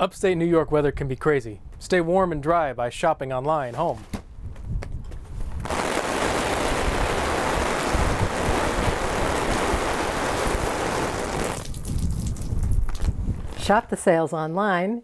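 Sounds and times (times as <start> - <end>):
water showering onto an umbrella: 6.1 - 13.6.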